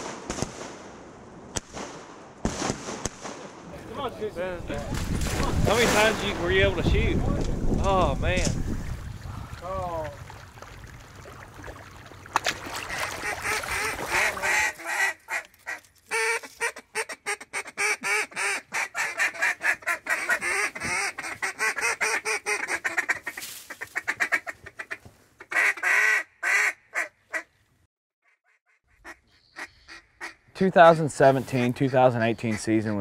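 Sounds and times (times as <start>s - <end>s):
ducks quacking: 12.7s - 27.5s, 28.3s - 33.0s.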